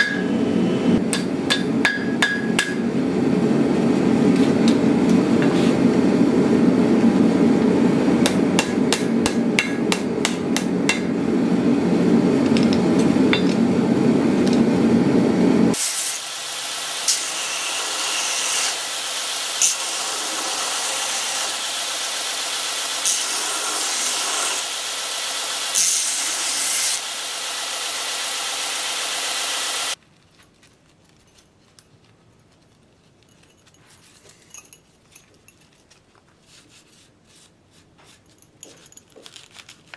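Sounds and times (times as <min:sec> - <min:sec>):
hammer striking steel on anvil: 0:00.0 - 0:00.4, 0:01.0 - 0:02.9, 0:08.2 - 0:11.2, 0:12.5 - 0:13.6
belt grinder hissing: 0:15.7 - 0:30.0
faint handling sounds: 0:30.0 - 0:39.9.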